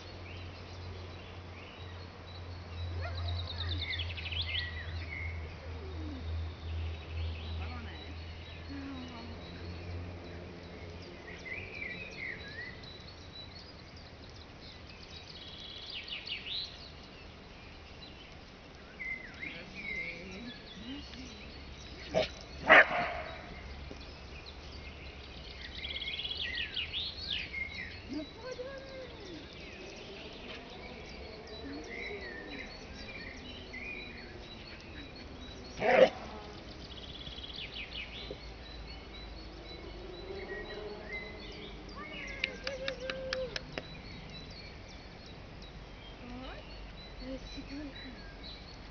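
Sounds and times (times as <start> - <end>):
birds chirping: 0.0 - 48.9
outdoor background noise: 0.0 - 48.9
dog barking: 22.1 - 23.5, 35.8 - 36.2.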